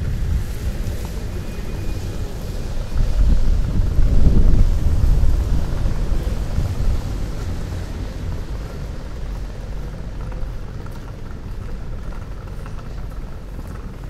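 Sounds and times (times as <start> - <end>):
low city rumble: 0.0 - 14.0.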